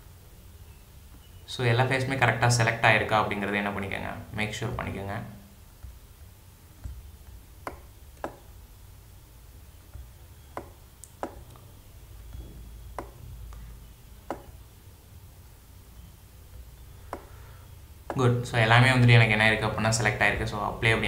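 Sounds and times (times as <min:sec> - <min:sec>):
faint low hum: 0:00.0 - 0:21.0
computer mouse clicking: 0:06.8 - 0:08.5, 0:09.9 - 0:11.7, 0:12.3 - 0:14.6.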